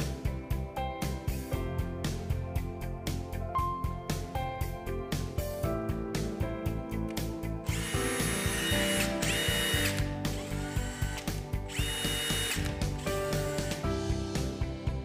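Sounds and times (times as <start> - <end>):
background music with steady beat: 0.0 - 15.0
impact driver motor whine: 7.7 - 13.8.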